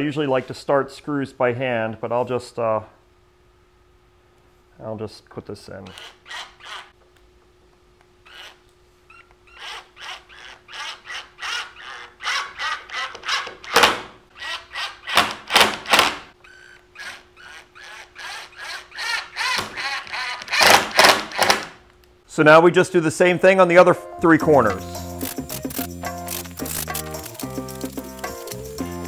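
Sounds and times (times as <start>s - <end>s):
cordless driver driving screws: 5.8s - 6.9s, 8.3s - 8.6s, 9.5s - 21.8s.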